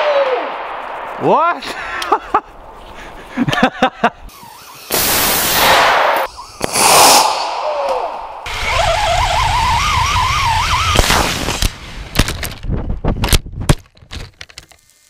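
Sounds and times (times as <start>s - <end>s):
rocket motor rushing hiss: 4.3s - 5.8s, 6.6s - 7.7s
sharp pops: 4.4s - 8.1s.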